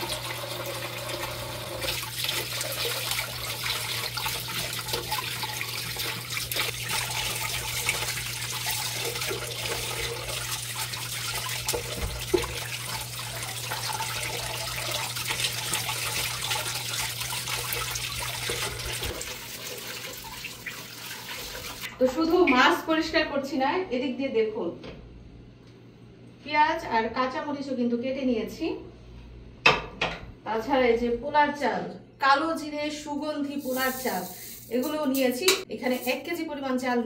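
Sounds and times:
water running from tap: 0.0 - 22.3, 33.6 - 36.2.

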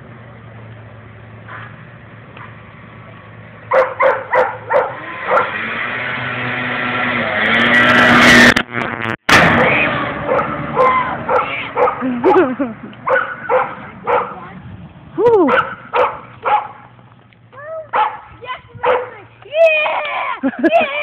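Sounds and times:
snowmobile engine passing: 4.0 - 12.7.

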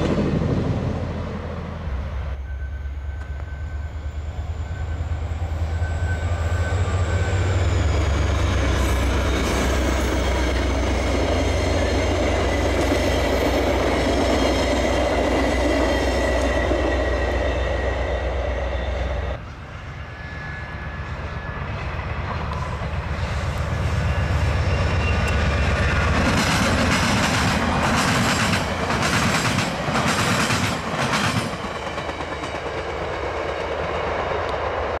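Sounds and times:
train wheels rumbling on rail: 0.0 - 35.0
train wheels clicking over rail joints: 24.8 - 34.7.

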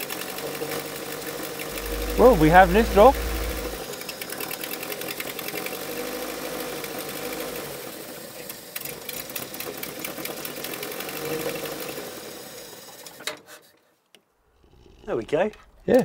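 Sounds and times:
turbo car engine wavering revs: 1.7 - 3.8.

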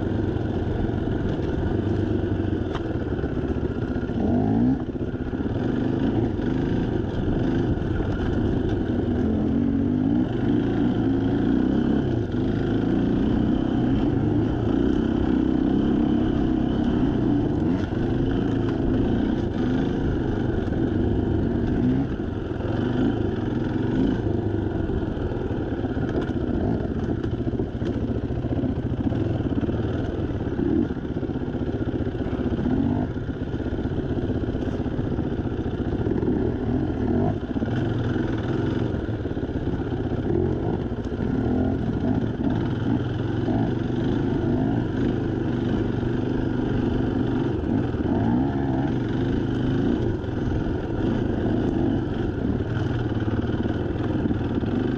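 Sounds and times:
dirt bike engine revving: 3.8 - 24.4, 35.8 - 39.0, 39.7 - 54.9.

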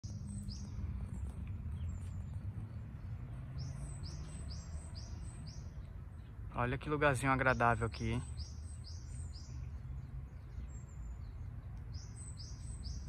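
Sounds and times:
birds calling: 0.0 - 13.0
road traffic rumble: 0.0 - 13.0.

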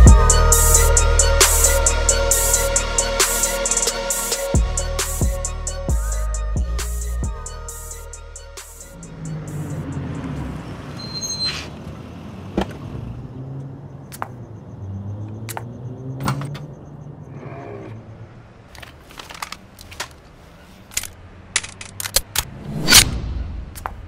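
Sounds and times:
car engine running: 0.0 - 11.0
gun mechanism clicking: 20.9 - 22.5.

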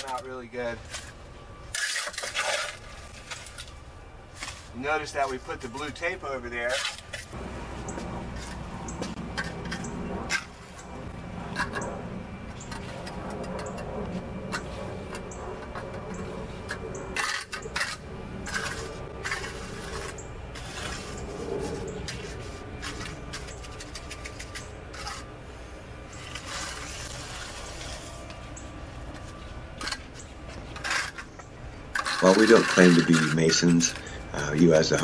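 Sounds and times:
trowel scraping wet concrete: 0.9 - 3.7, 4.4 - 7.4, 16.7 - 25.3, 26.2 - 28.3, 29.1 - 35.0.

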